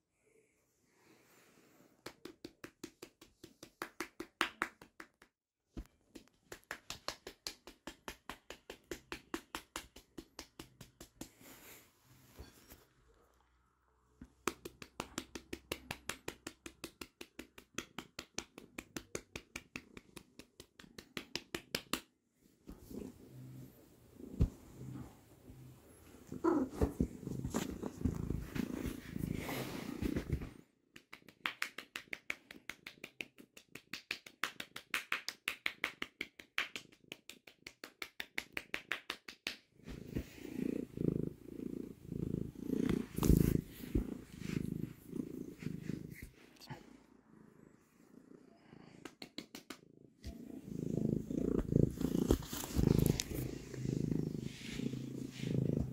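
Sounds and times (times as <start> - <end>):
kitten purring: 22.8 - 30.5, 40.0 - 49.0, 49.8 - 55.9.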